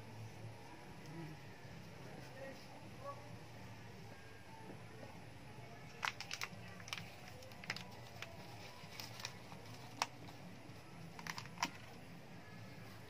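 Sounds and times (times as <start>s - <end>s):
plastic gloves handling plant pots: 5.8s - 12.2s.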